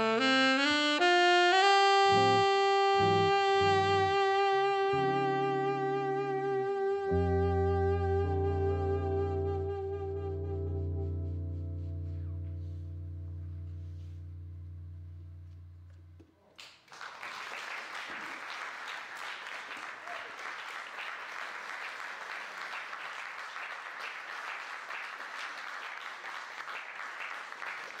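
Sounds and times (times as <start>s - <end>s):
held music note: 2.2s - 16.2s
audience applause: 16.6s - 28.0s.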